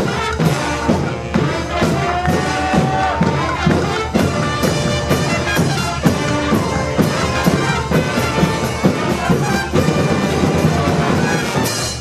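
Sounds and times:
brass band with drums playing: 0.0s - 12.0s.

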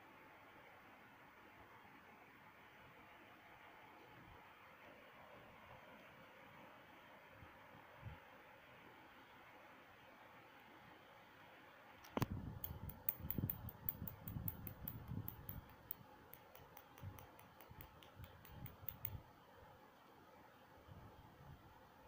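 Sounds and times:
puppy claws clicking on hard floor: 12.6s - 19.2s.

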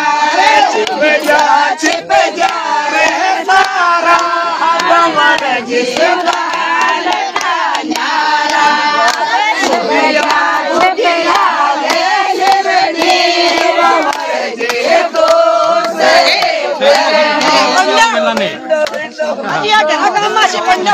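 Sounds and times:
women singing folk song: 0.0s - 20.9s
hand claps: 0.4s - 20.9s.

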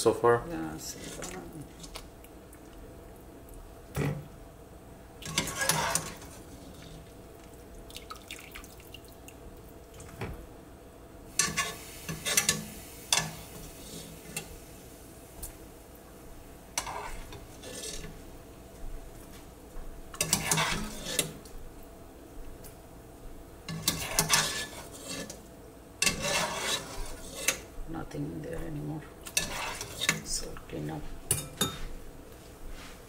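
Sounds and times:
broth dripping and splashing: 6.8s - 10.2s.

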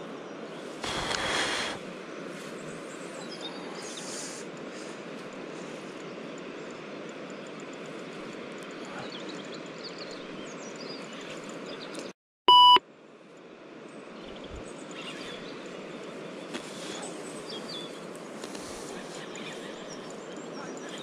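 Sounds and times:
small birds chirping: 0.0s - 12.1s, 13.9s - 21.0s
outdoor background noise: 0.0s - 21.0s
short electronic beep: 12.5s - 12.8s.

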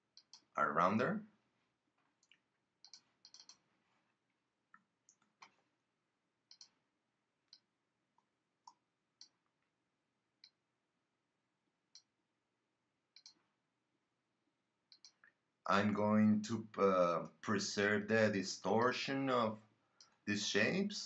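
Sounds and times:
keyboard and mouse clicks: 2.2s - 3.7s, 6.5s - 6.8s, 13.2s - 13.5s, 14.9s - 15.4s.

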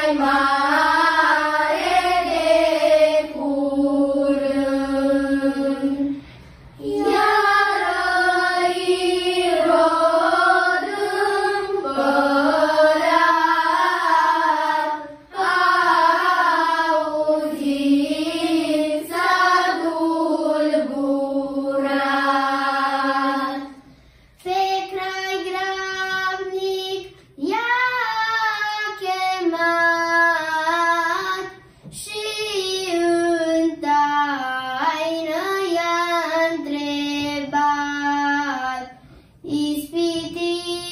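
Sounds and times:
children's choir singing carol: 0.0s - 40.9s.

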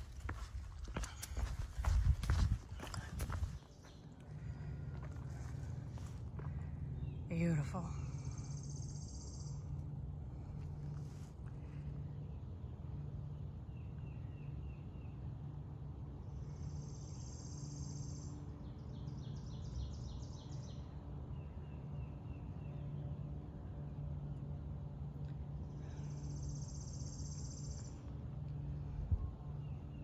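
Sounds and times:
birds calling: 0.0s - 9.8s
steady low rumble: 0.0s - 30.0s.

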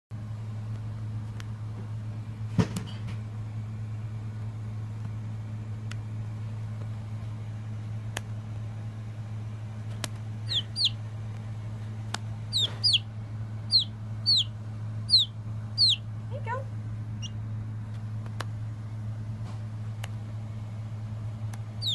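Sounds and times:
low hum: 0.2s - 21.9s
chick peeping: 10.4s - 11.0s, 12.5s - 13.1s, 13.7s - 16.1s.

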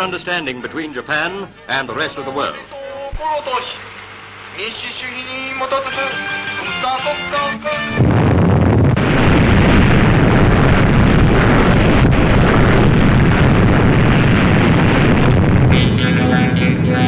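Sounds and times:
music: 5.8s - 8.1s, 15.5s - 17.0s
rumbling roar of explosion: 8.0s - 17.0s.

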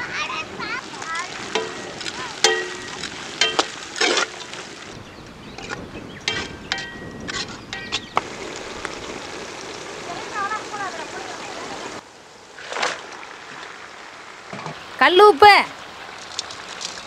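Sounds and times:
frying hiss: 0.0s - 6.8s, 7.6s - 12.0s
ladle clinking and scraping pan: 1.5s - 4.6s, 5.6s - 8.1s.

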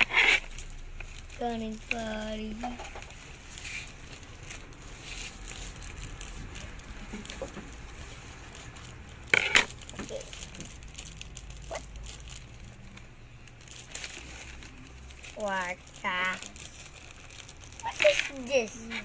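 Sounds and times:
scissors cutting plastic: 0.0s - 12.3s, 17.5s - 19.0s
plastic pouch crinkling: 0.0s - 19.0s.

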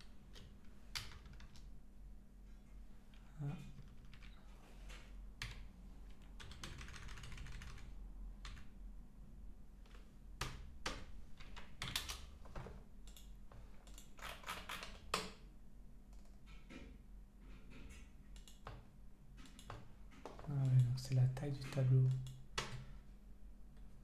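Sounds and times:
computer keyboard typing: 0.3s - 1.7s, 3.8s - 4.4s, 5.4s - 8.7s, 10.4s - 12.3s, 13.1s - 15.3s, 18.4s - 18.8s.

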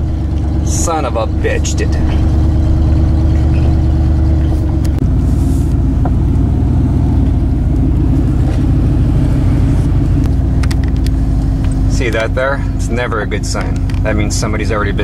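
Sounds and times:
engine and road noise drone: 0.0s - 15.0s.

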